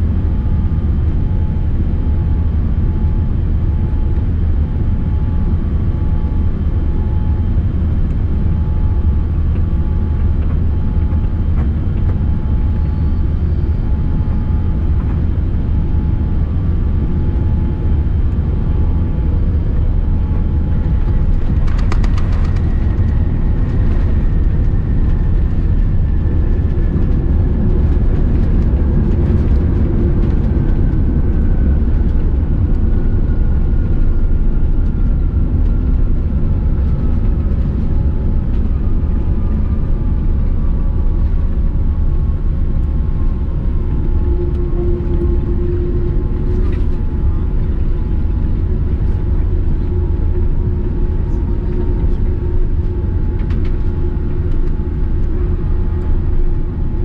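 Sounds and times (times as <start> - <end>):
airliner cabin rumble: 0.0 - 57.0
falling engine whine: 4.7 - 57.0.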